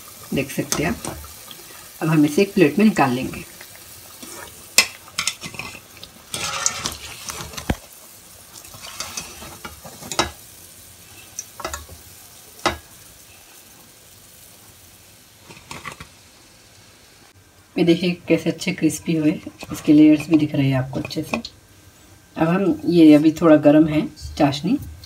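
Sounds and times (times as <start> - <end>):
food sizzling in oil: 0.0 - 25.0
skimmer scraping metal pan: 5.2 - 7.7, 8.7 - 10.3.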